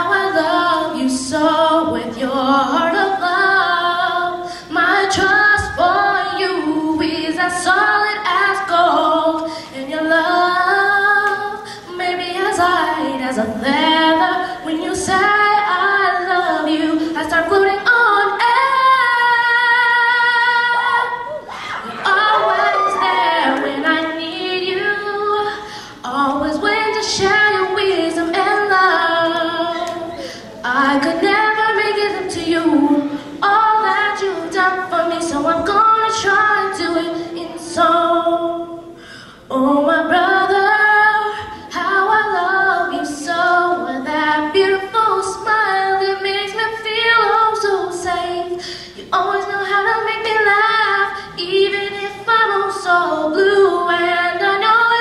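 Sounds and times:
girl singing unaccompanied: 0:00.0 - 0:55.0.

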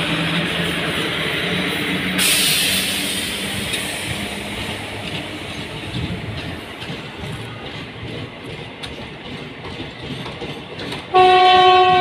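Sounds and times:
electric locomotive hum: 0:00.0 - 0:12.0
train wheels rumbling on track: 0:00.0 - 0:12.0
sudden hiss: 0:02.1 - 0:05.9.

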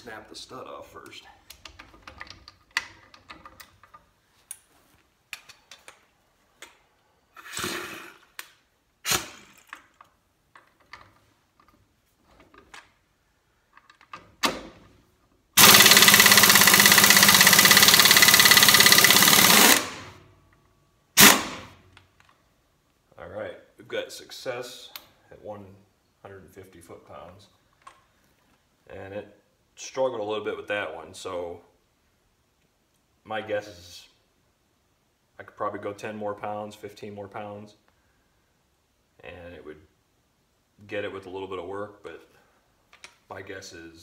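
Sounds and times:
air impact wrench hammering: 0:15.6 - 0:20.2, 0:21.2 - 0:21.7.

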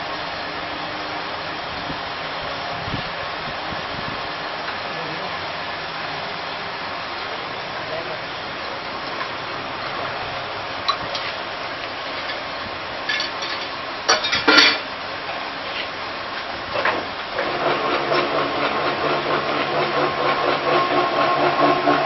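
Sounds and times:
metallic clanks: 0:12.1 - 0:14.9
machine hum: 0:16.8 - 0:22.0.

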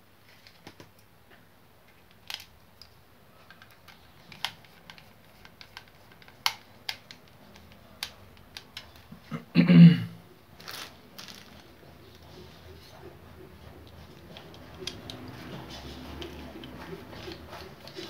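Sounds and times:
plastic parts clicking and tapping: 0:00.3 - 0:09.2, 0:13.8 - 0:18.0.

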